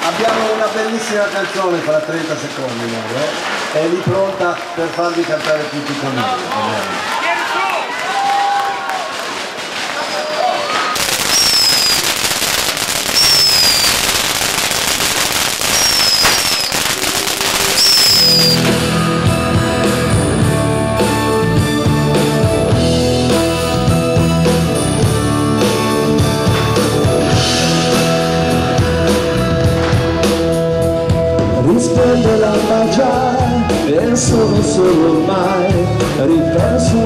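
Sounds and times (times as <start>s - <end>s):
fireworks crackling: 0.0s - 7.1s, 8.6s - 20.2s
falling firework whistles: 10.0s - 18.9s
live pop band playing: 15.8s - 37.0s.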